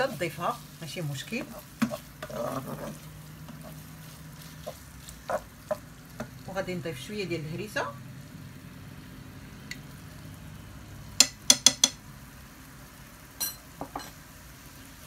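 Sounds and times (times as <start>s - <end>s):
chicken sizzling in a frying pan: 0.0s - 15.0s
spoon clinking on a pan: 11.2s - 12.0s, 13.4s - 14.2s.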